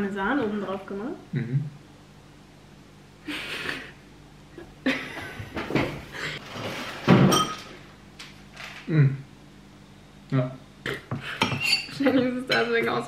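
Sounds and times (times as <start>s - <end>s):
cutlery clinking on a plate: 11.4s - 12.7s.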